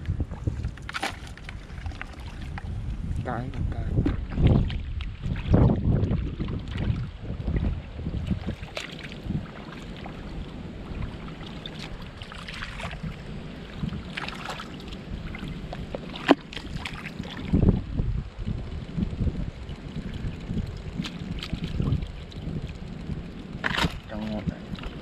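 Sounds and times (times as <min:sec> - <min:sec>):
wind rumbling on microphone: 0:00.0 - 0:25.0
shallow water splashing: 0:00.3 - 0:03.3, 0:04.0 - 0:17.8, 0:19.4 - 0:25.0
mud squelching: 0:00.6 - 0:02.8, 0:04.0 - 0:17.8, 0:20.0 - 0:22.8.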